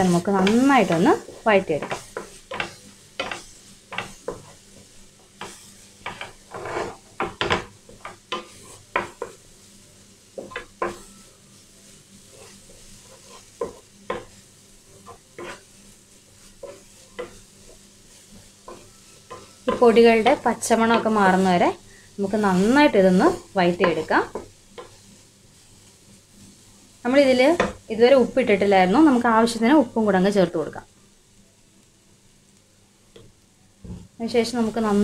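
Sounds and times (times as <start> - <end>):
wooden spatula scraping a pan: 0.0 - 9.6, 10.3 - 27.8
faint sizzle of frying: 0.0 - 35.0.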